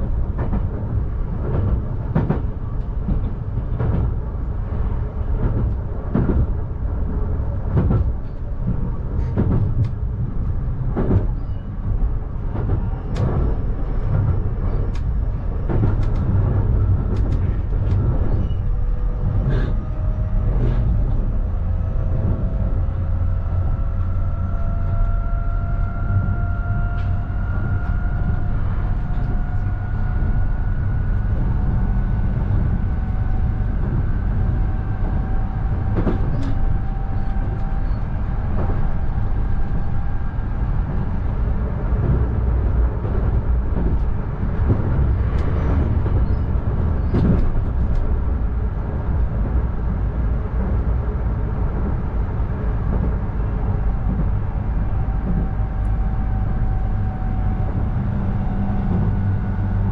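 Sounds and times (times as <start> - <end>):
train rumbling on rails: 0.0 - 59.9.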